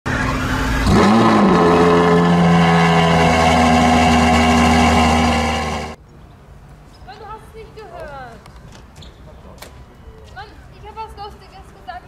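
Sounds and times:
car engine revving: 0.1s - 6.0s.

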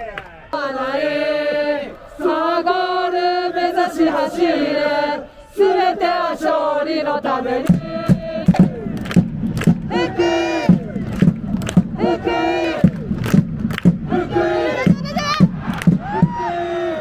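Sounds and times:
crowd chanting in unison: 0.1s - 17.0s
steady beat of thuds: 7.6s - 16.8s.

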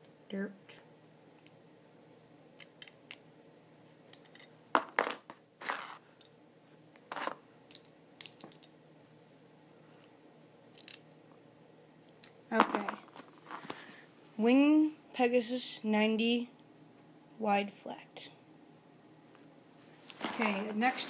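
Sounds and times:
toy top parts clicking together: 10.7s - 11.0s.

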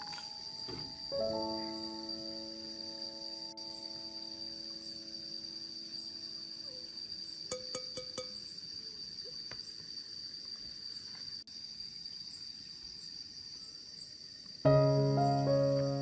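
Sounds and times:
crickets chirring: 0.0s - 16.0s
glass vase clicks: 7.5s - 8.4s.

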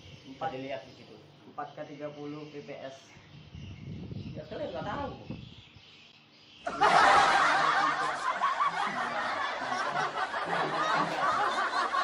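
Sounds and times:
group of people laughing: 6.7s - 12.0s.

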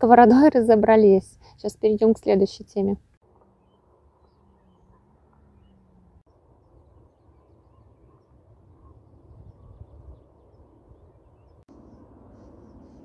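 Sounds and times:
faint bird chirps: 3.4s - 13.0s.

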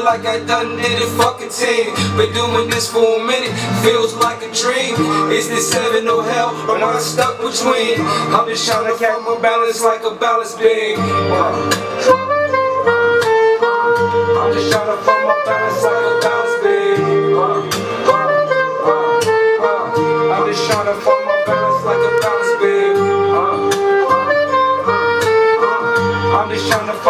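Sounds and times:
hip-hop beat with bass: 0.0s - 27.0s
soprano saxophone melody: 11.0s - 27.0s.

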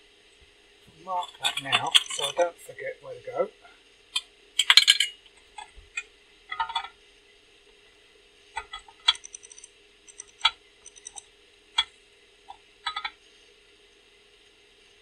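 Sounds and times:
metal gauge clicking against metal: 8.6s - 11.2s.

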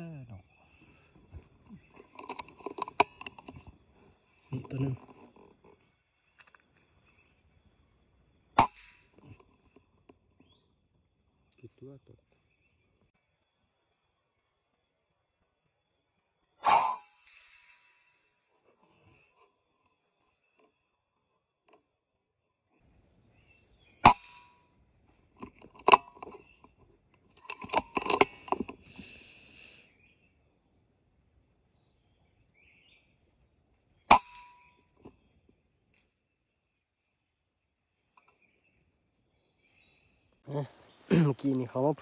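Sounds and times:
clicks and clatter: 1.6s - 3.7s, 25.3s - 29.0s.

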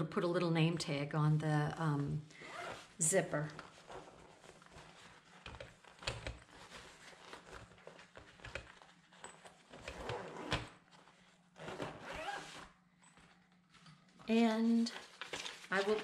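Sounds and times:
zipper being drawn: 2.4s - 3.0s, 9.9s - 10.7s, 11.6s - 12.8s.

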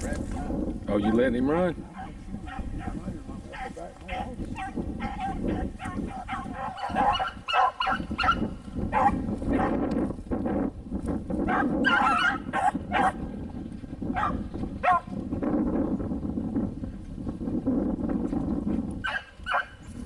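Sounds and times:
dogs baying and barking: 0.4s - 9.8s, 11.5s - 13.2s, 14.1s - 15.1s, 19.0s - 19.8s.

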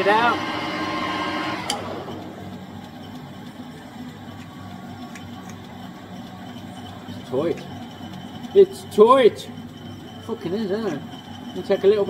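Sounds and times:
metal lathe spinning down: 0.0s - 12.0s.

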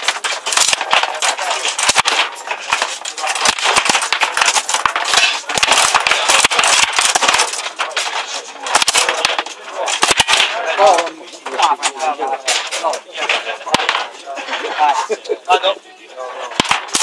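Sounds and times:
steel rods being worked: 0.0s - 15.0s, 16.4s - 17.0s
steady background noise: 0.0s - 17.0s.

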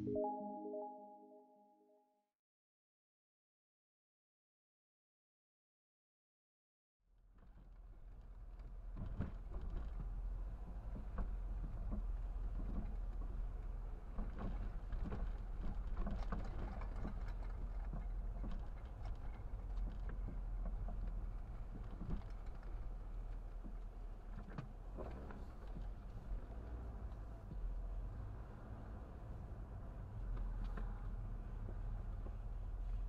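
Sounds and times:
car engine and road rumble: 7.8s - 33.0s.

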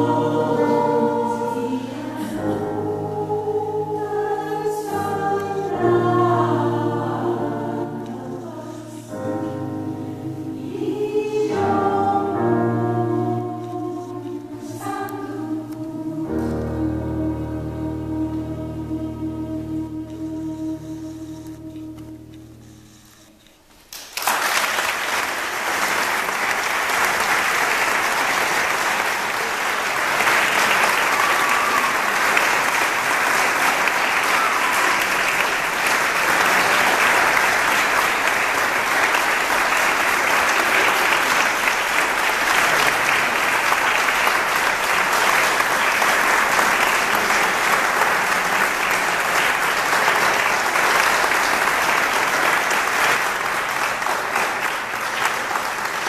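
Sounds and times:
audience applauding: 23.9s - 56.0s.

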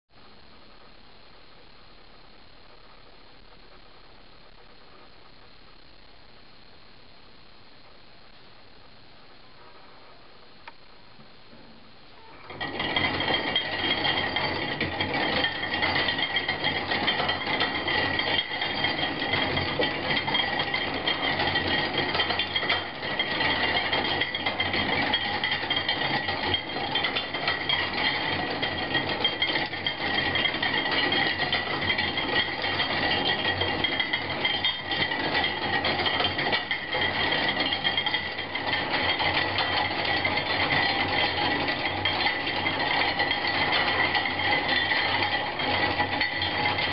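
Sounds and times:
steady high-pitched ring: 12.2s - 46.9s
metal parts clattering and rattling: 12.4s - 46.9s.

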